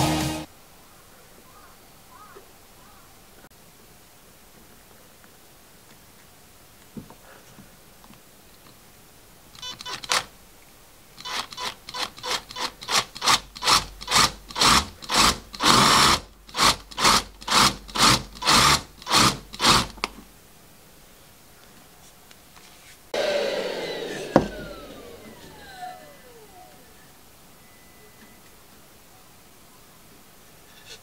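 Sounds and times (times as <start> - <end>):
electric drill boring into wood: 11.2 - 20.0, 23.2 - 27.0.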